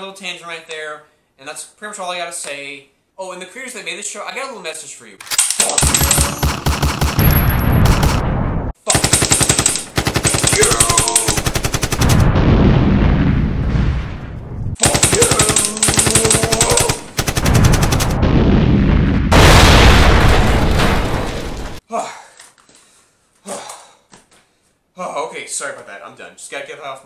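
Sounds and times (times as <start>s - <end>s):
machine-gun fire: 5.3s - 12.9s, 14.8s - 18.4s
explosion blasts: 7.0s - 8.8s, 11.9s - 15.5s, 16.1s - 21.8s.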